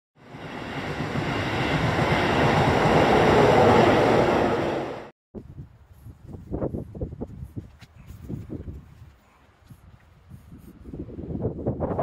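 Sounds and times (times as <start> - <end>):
train rumbling past: 0.2 - 5.1
wind on microphone: 5.4 - 12.0.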